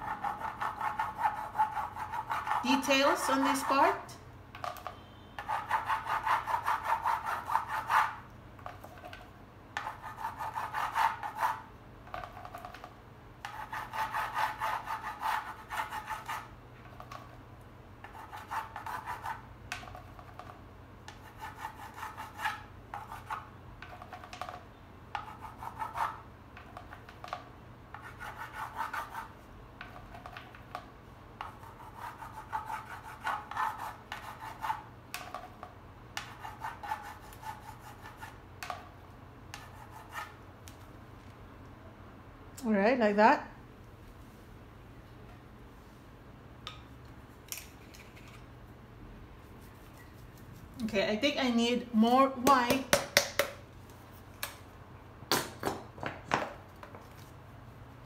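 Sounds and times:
palette knife scraping paint: 0.0s - 4.0s, 5.4s - 8.2s, 9.8s - 12.3s, 13.4s - 16.5s, 18.0s - 19.4s, 21.1s - 23.5s, 25.2s - 26.2s, 27.9s - 29.3s, 31.4s - 35.4s, 36.2s - 38.8s, 39.5s - 40.4s.

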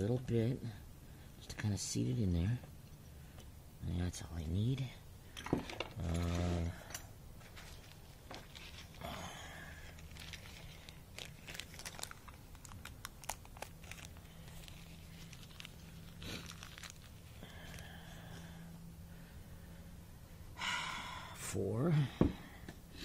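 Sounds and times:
paper packet crinkling and tearing: 7.4s - 18.0s.

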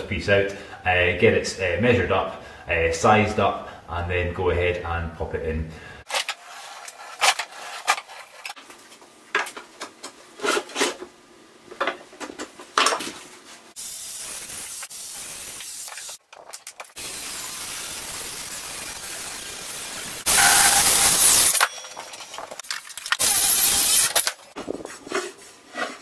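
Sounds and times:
steady hiss: 13.7s - 16.2s, 16.9s - 21.6s.

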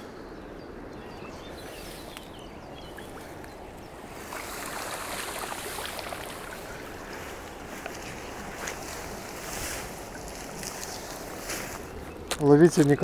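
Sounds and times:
birds chirping: 0.0s - 13.0s
grass rustling: 1.6s - 13.0s
water splashing: 2.9s - 11.8s.

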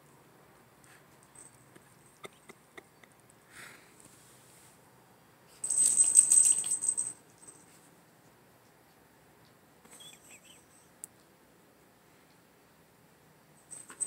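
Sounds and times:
metal pieces jingling: 5.6s - 7.5s.

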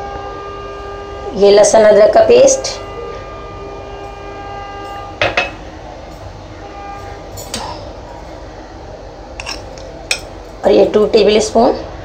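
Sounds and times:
droning tone with a whine: 0.0s - 12.0s
dishes and utensils clinking: 9.4s - 10.4s.

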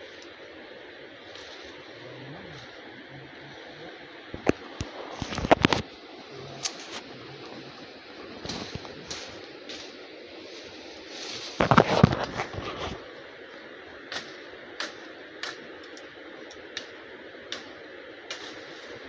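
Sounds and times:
twigs snapping: 4.4s - 5.9s, 8.4s - 10.0s
footsteps crunching through dry leaves: 6.5s - 13.2s.

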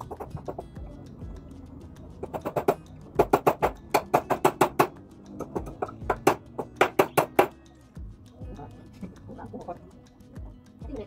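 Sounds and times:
hammer striking nails into wood: 2.3s - 7.6s.

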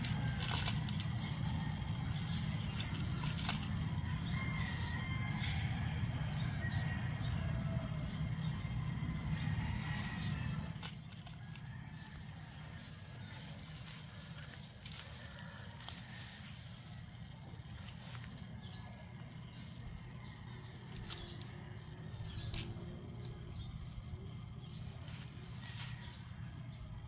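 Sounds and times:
cat crunching dry kibble: 0.0s - 4.0s
steady high whine: 0.0s - 27.0s.

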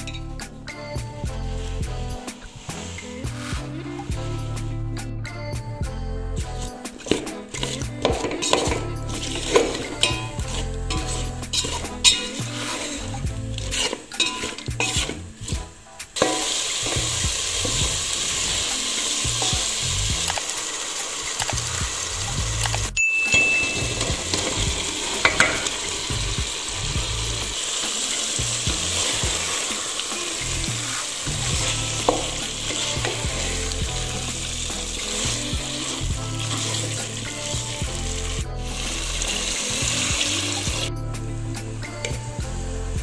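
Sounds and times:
meat sizzling in a pot: 0.0s - 4.7s, 6.4s - 43.0s
spatula scraping a pot: 6.6s - 19.8s, 27.7s - 40.9s
utensil knocking against pot: 16.2s - 16.6s, 23.2s - 25.8s.

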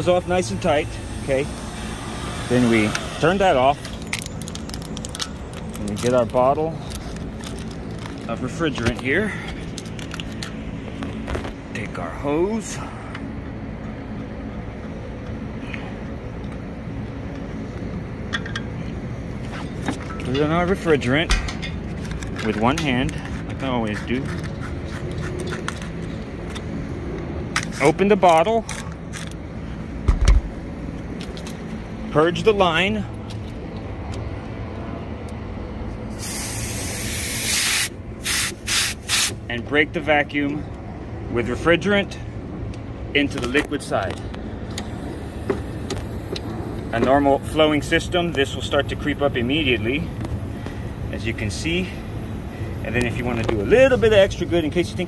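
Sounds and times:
steady low rumble: 0.0s - 36.2s
hvac unit humming: 0.0s - 55.0s
refrigerant hissing from hose: 0.6s - 3.5s, 36.2s - 39.4s.

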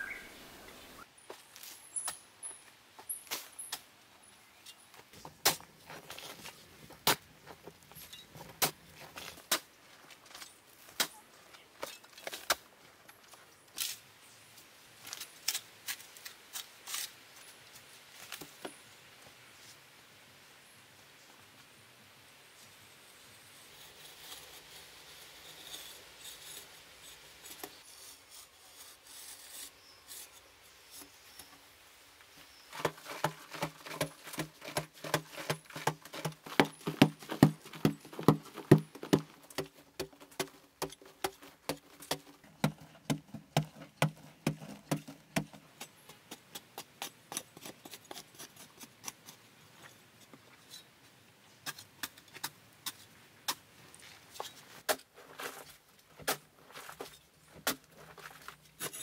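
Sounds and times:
hoe scraping and chopping earth: 32.5s - 50.0s, 54.3s - 59.0s.

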